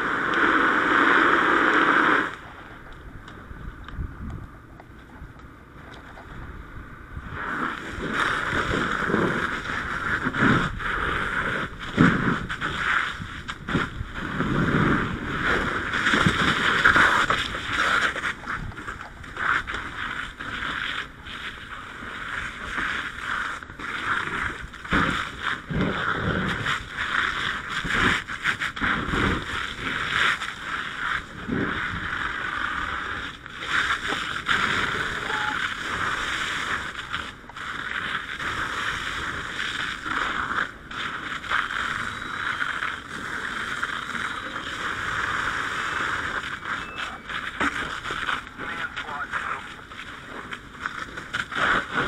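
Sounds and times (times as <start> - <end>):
fire hose water rushing: 0.0 - 2.6, 7.2 - 52.0.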